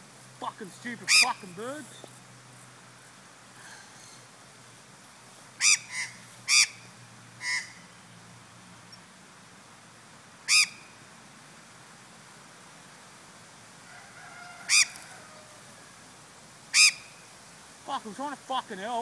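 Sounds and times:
magpie squawking: 1.0s - 1.9s, 5.6s - 6.8s, 7.4s - 7.8s, 10.5s - 10.8s, 16.7s - 17.1s.

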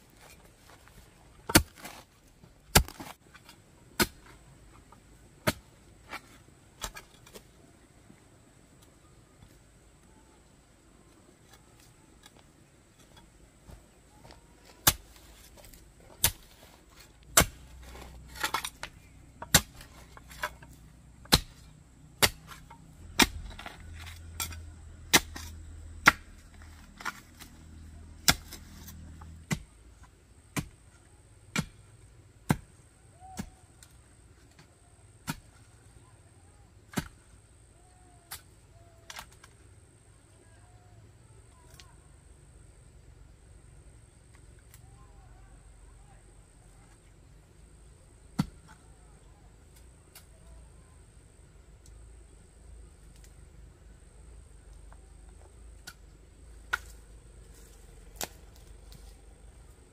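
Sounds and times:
digging tool striking stony ground: 1.4s - 4.3s, 5.4s - 7.5s, 14.2s - 27.5s, 28.2s - 29.7s, 30.6s - 30.8s, 31.5s - 31.8s, 32.4s - 33.6s, 35.2s - 35.6s, 36.9s - 37.2s, 48.3s - 48.8s, 56.7s - 57.0s, 57.6s - 59.1s.

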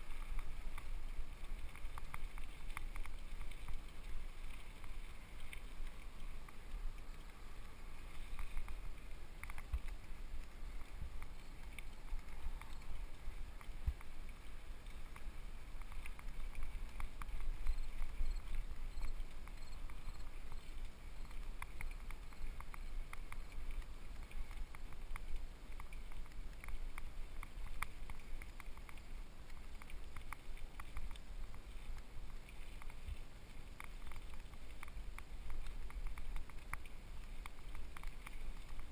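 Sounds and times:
low wind rumble: 0.0s - 25.7s.

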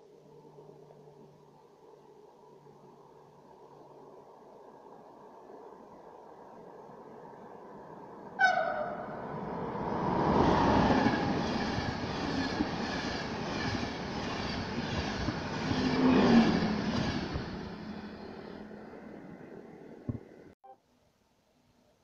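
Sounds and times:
train rumbling on rails: 2.1s - 20.5s
train horn blast: 8.4s - 9.2s.

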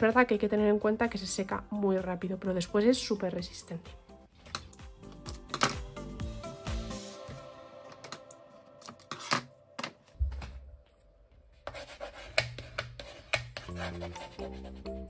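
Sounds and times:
soft background music: 0.0s - 15.0s
scratchy rubbing of paper: 11.6s - 15.0s.

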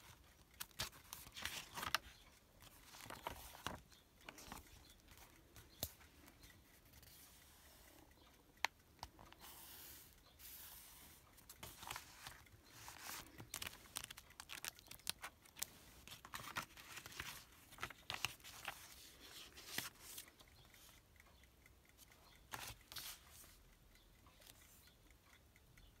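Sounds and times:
small sharp clicks and taps: 0.0s - 26.0s
paper pages rustling: 0.6s - 6.0s, 10.6s - 20.3s.

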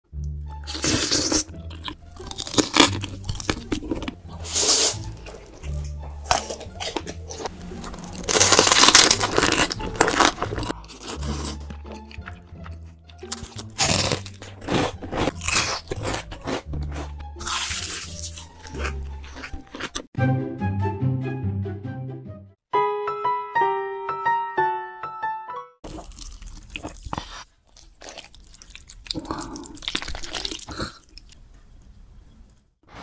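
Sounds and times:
crunching and chewing fried food: 0.6s - 20.2s, 25.8s - 32.7s.

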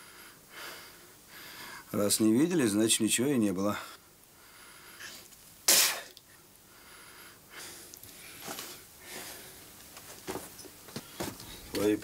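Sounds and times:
man breathing faintly: 0.0s - 1.9s, 3.7s - 5.3s, 6.6s - 9.8s.

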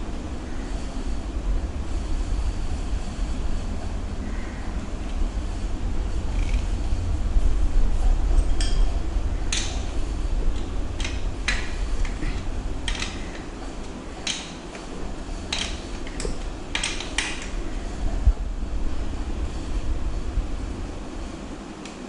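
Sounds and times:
low rumble: 0.0s - 13.7s
bicycle derailleur clicking: 6.2s - 6.9s, 9.5s - 13.6s, 15.4s - 17.6s.

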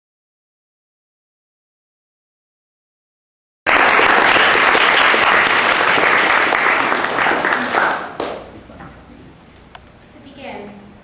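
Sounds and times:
audience applauding: 3.7s - 8.5s.

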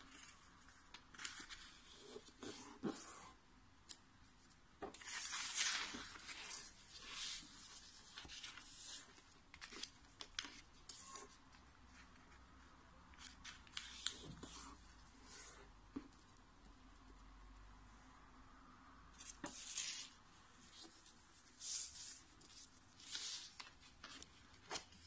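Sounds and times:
paper rustling and crackling: 4.9s - 11.3s.

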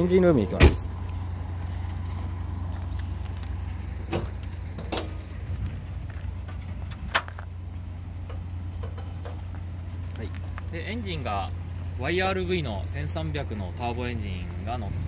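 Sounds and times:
car bonnet latch clicks: 4.1s - 5.2s.

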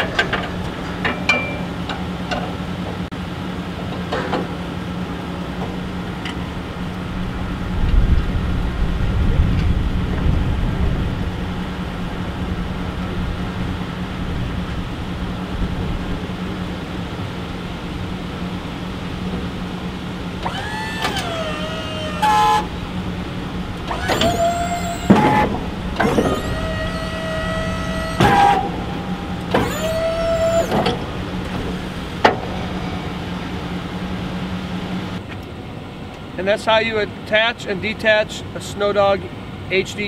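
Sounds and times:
hydraulic pump motor whining: 12.7s - 35.2s.

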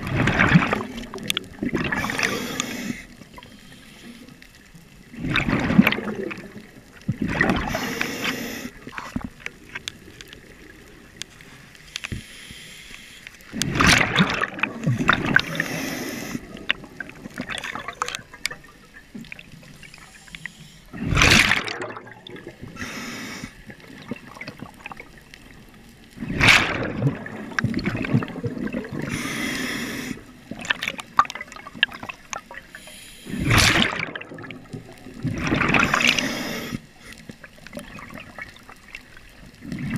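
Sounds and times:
exhaled bubbles gurgling: 0.0s - 11.4s, 13.5s - 39.9s
diving regulator hiss: 1.9s - 4.3s, 7.6s - 8.8s, 12.0s - 13.3s, 15.4s - 16.5s, 19.7s - 20.9s, 22.7s - 23.6s, 29.1s - 30.3s, 32.7s - 33.5s, 35.8s - 37.2s.

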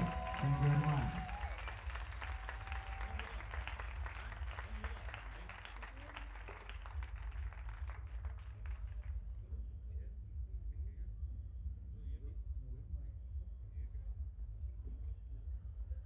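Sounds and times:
audience applauding: 0.0s - 9.2s
low rumble: 6.7s - 16.0s.

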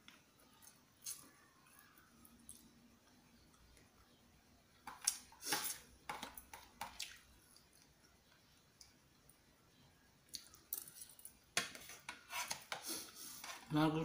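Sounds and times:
fork scraping plastic bowl: 11.7s - 13.8s.

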